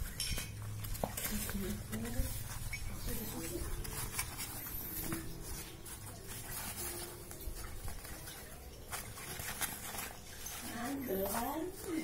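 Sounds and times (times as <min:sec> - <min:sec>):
fabric case rustling and scraping: 0:00.0 - 0:12.0.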